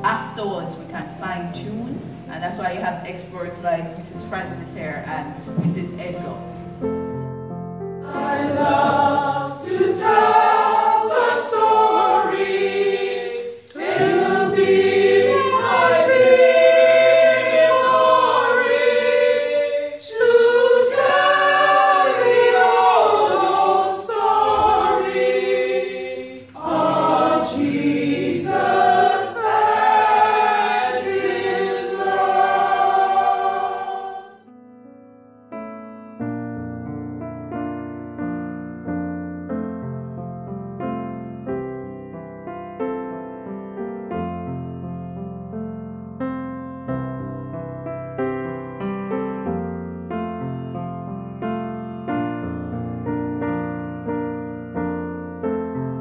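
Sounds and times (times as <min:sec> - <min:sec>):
group of people singing: 0:08.0 - 0:34.4.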